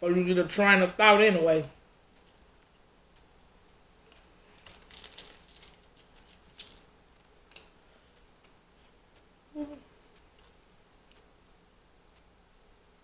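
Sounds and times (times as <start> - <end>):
small clicks and smacks: 2.1 - 11.4, 12.1 - 12.3
chewing food: 4.1 - 8.6.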